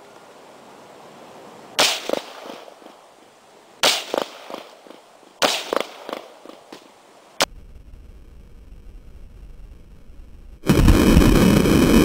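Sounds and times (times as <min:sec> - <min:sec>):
rifle shots: 0:01.8 - 0:02.7, 0:03.8 - 0:06.4
quieter cracks: 0:03.8 - 0:07.6.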